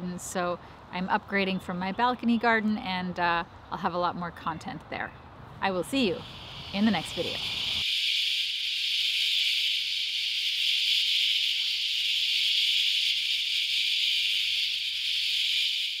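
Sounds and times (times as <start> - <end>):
cicadas buzzing: 5.6 - 16.0.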